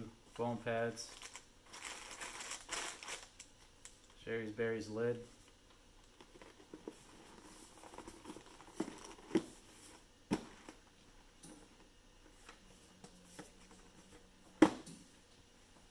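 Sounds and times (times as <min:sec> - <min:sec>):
cardboard scraping and rustling: 0:06.2 - 0:10.8.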